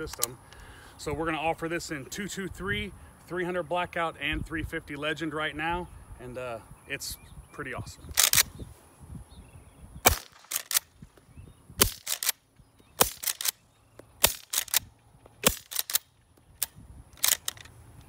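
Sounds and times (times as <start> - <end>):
muffled rifle shots: 8.2 - 8.5, 10.0 - 10.9, 13.0 - 13.6, 14.2 - 16.0
rifle lever clacking: 8.2 - 8.5, 14.2 - 17.8.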